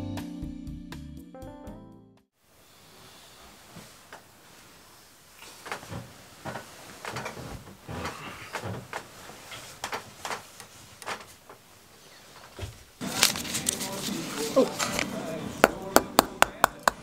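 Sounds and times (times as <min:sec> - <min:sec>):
bedding rustling: 0:02.8 - 0:15.4.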